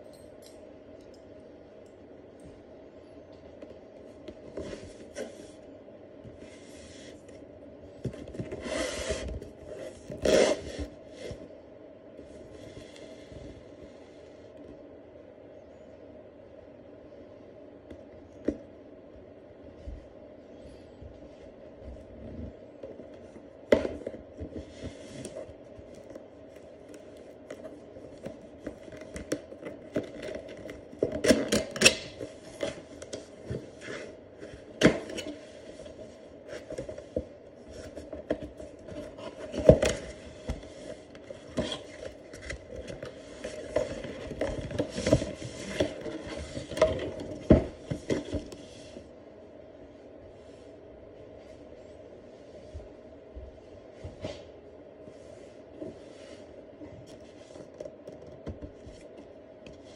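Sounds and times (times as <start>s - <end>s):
cardboard box rubbing and scraping: 8.5s - 11.0s.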